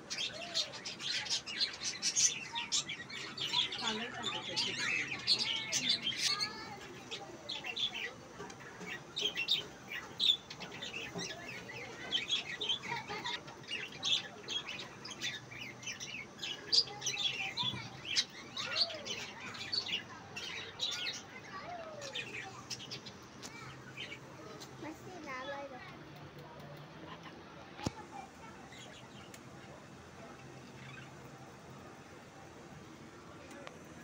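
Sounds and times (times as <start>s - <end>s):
budgerigars chirping and warbling: 0.1s - 23.2s.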